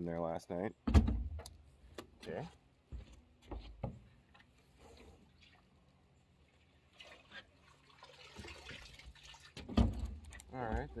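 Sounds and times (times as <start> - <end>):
footsteps on wooden boards: 2.9 - 4.5.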